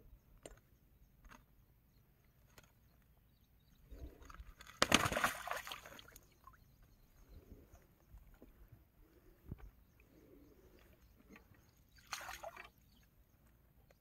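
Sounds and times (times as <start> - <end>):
fish splashing in water: 4.6 - 6.2, 12.0 - 12.7.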